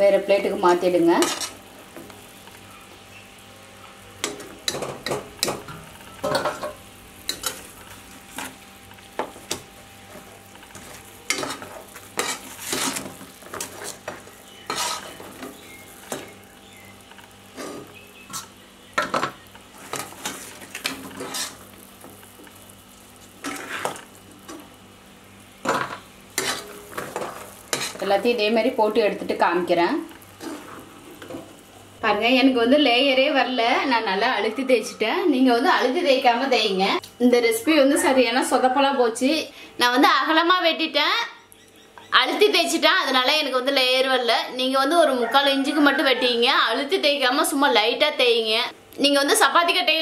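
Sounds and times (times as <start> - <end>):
oil sizzling in a pan: 0.0 - 34.5
metal skimmer scraping a pan: 10.7 - 16.3, 17.5 - 21.6, 23.4 - 24.1, 25.7 - 28.1.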